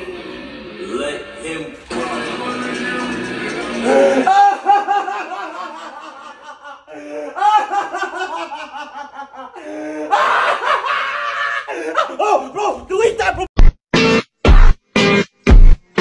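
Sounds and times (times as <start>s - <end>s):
person laughing: 3.8s - 13.4s.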